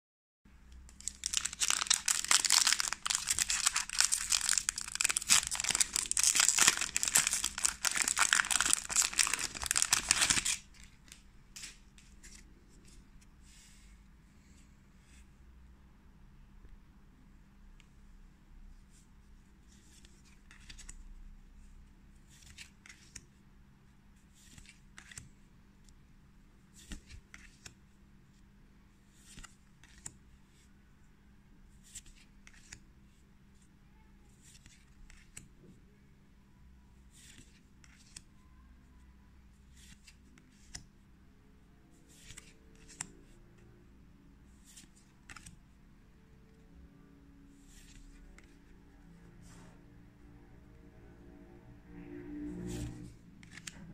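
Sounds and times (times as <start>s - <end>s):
cards sliding swishes: 53.4s - 53.8s.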